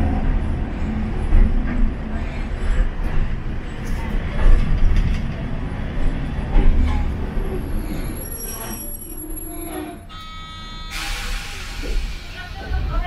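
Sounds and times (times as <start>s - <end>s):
tram wheels and motors rumbling: 0.0s - 13.0s
faint high squeal: 7.9s - 11.8s.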